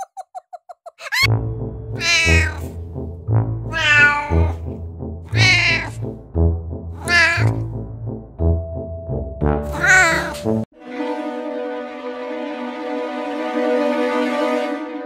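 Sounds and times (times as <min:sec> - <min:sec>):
cat meowing: 0:02.0 - 0:02.7, 0:03.7 - 0:04.6, 0:05.3 - 0:06.0, 0:07.0 - 0:07.6, 0:09.7 - 0:10.4.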